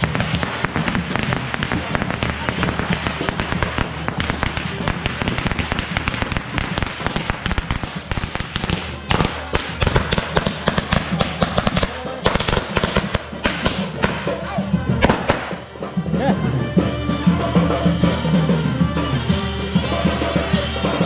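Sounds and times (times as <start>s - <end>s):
voices: 0.0s - 7.3s, 8.0s - 21.0s
firecrackers cracking: 0.0s - 15.8s
music: 0.0s - 21.0s.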